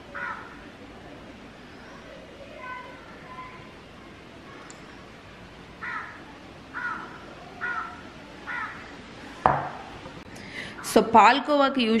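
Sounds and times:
crow cawing: 0:00.1 - 0:00.6, 0:05.8 - 0:08.9
sharp knock: 0:09.5 - 0:09.9.

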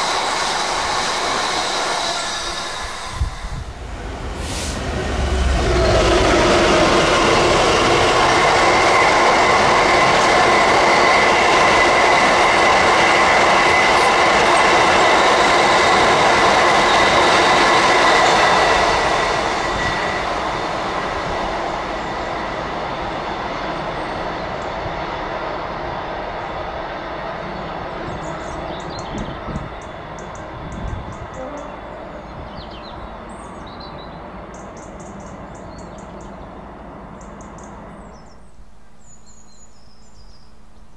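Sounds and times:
freight train passing: 0:00.0 - 0:40.3
train wheels ringing on rails: 0:04.4 - 0:33.7.

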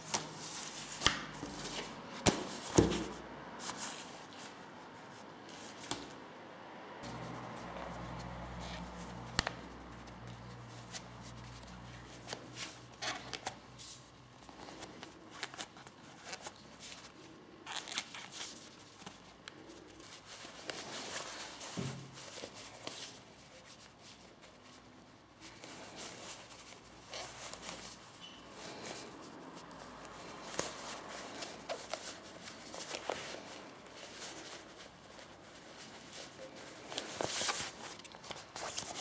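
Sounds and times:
leather rustling: 0:07.0 - 0:39.0.

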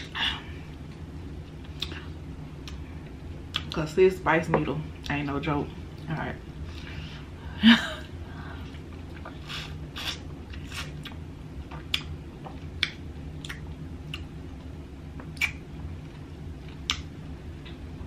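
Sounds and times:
wet lip smacks: 0:15.4 - 0:15.6.

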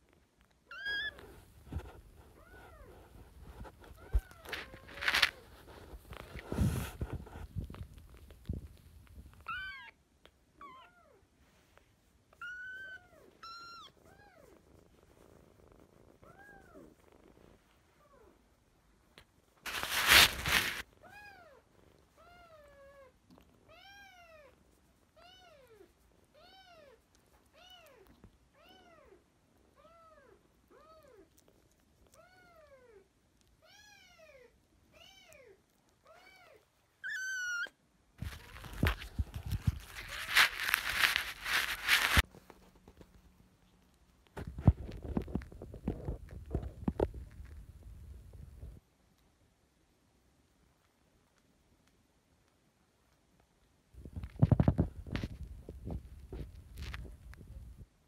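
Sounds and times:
loud rustling: 0:19.6 - 0:20.8, 0:38.2 - 0:42.8.

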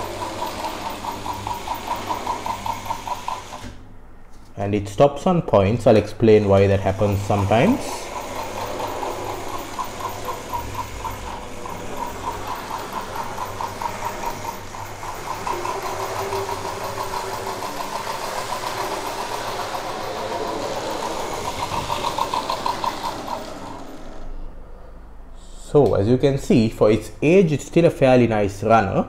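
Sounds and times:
model locomotive chuffing: 0:00.0 - 0:03.6, 0:07.0 - 0:24.3
electric motor whirring: 0:06.8 - 0:24.3.

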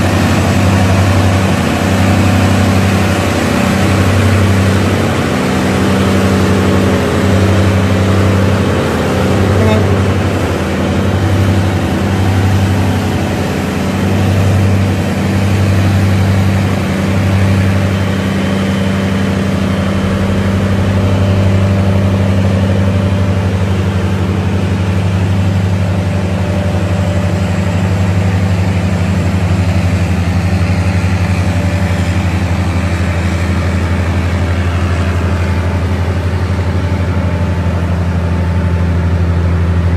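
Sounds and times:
truck diesel engines droning: 0:00.0 - 0:39.9.

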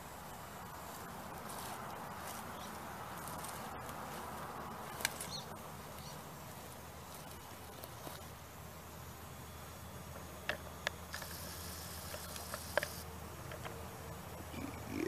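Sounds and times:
electric motor drivetrain running: 0:06.7 - 0:15.0.

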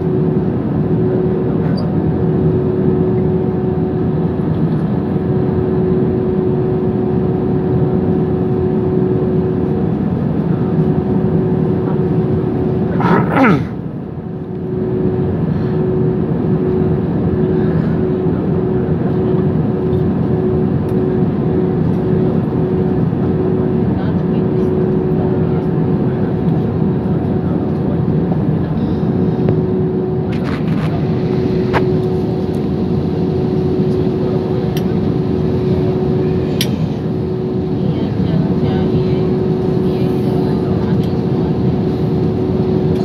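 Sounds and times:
jet engines idling hum: 0:00.0 - 0:43.0.

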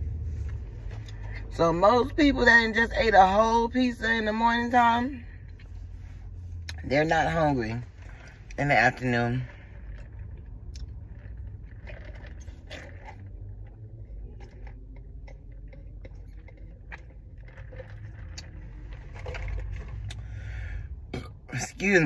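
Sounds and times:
low car interior hum: 0:00.0 - 0:22.0
sipping through a straw: 0:09.5 - 0:20.7.

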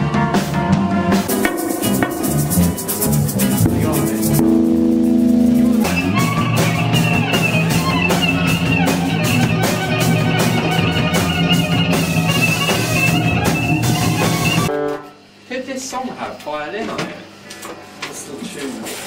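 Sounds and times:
electric guitar: 0:00.0 - 0:15.2
drum kit with cymbals: 0:00.0 - 0:15.3.

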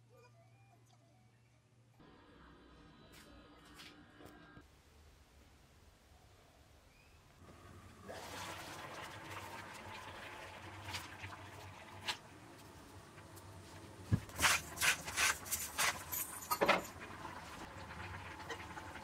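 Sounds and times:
water boiling in a pot: 0:07.4 - 0:19.0.

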